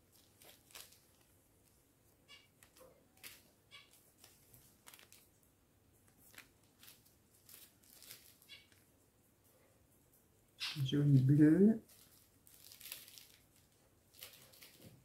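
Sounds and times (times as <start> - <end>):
plastic bags crinkling: 0.0 - 1.7, 4.1 - 5.4, 6.1 - 8.8, 11.8 - 15.0.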